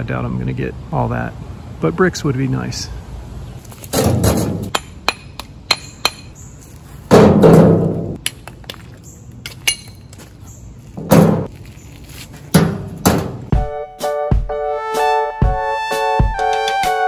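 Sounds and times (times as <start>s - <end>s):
brick-on-brick clinks: 9.4s - 10.2s.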